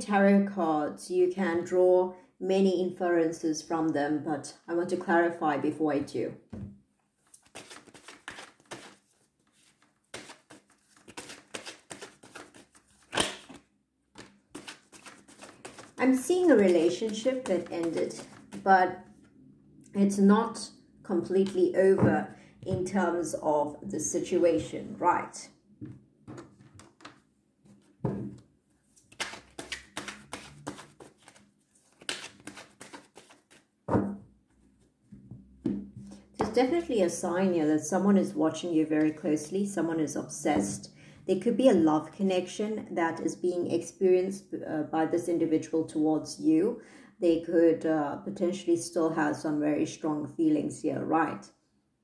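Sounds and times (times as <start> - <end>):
cards being shuffled: 7.2 - 13.6, 14.2 - 18.6, 26.3 - 27.9, 28.9 - 33.6.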